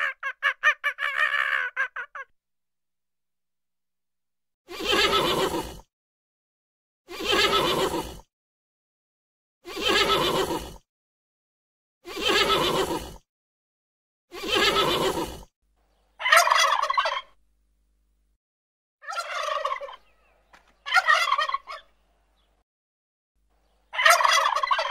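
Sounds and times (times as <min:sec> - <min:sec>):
turkey gobbling: 0:16.2 - 0:17.4, 0:19.0 - 0:21.9, 0:23.9 - 0:24.9.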